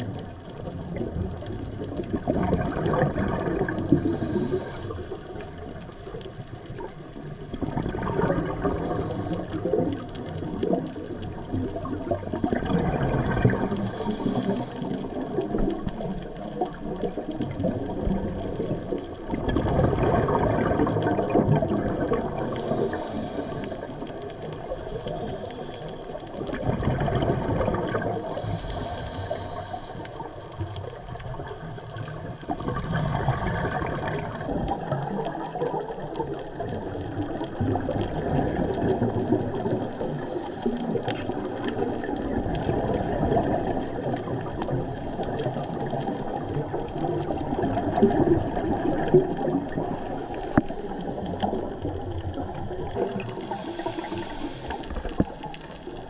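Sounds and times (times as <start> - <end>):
bubbles gurgling underwater: 0.0 - 56.0
faint clicks: 0.0 - 56.0
regulator inhalations: 3.9 - 5.2, 8.6 - 9.7, 13.7 - 15.3, 22.4 - 26.2, 28.2 - 30.3, 39.8 - 41.2, 50.0 - 51.3, 53.0 - 56.0.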